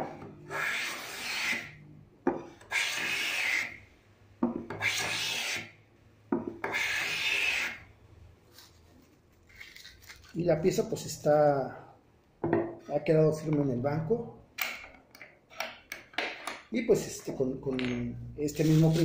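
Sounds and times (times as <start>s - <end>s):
hand plane scraping hiss: 2.7s - 3.8s.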